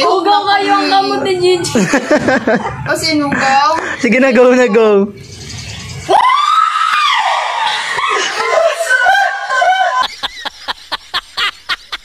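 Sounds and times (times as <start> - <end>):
woman laughing: 1.8 - 4.0, 7.6 - 12.0
woman screaming: 6.1 - 10.0.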